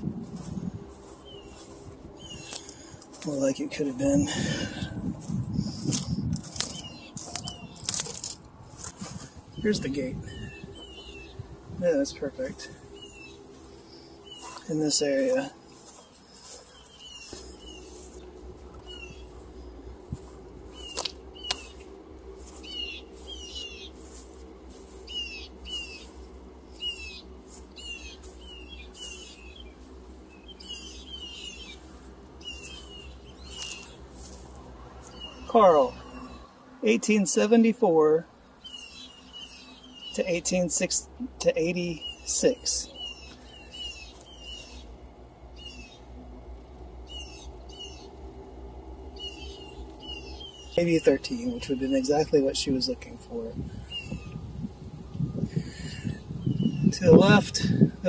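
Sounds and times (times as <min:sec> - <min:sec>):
low steady rumble: 0:00.0 - 0:36.6
songbird calling: 0:00.0 - 0:48.4, 0:49.0 - 0:58.0
birds chirping: 0:00.0 - 0:58.0
low steady hum: 0:00.0 - 0:58.0.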